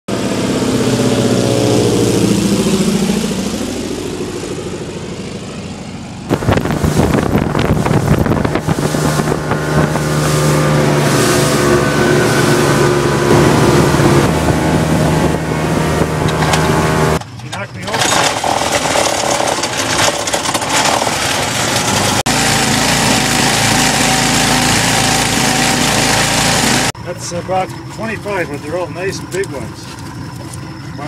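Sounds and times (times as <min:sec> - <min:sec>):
motorboat engine running: 0:00.1 - 0:31.0
propeller plane engine drone: 0:00.1 - 0:31.0
wind noise on microphone: 0:06.3 - 0:17.2.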